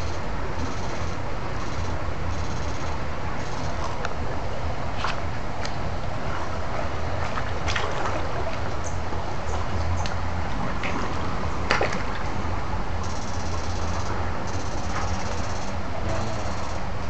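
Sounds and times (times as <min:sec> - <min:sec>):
electrofishing rig humming: 0:00.0 - 0:17.0
water splashes: 0:03.0 - 0:13.1.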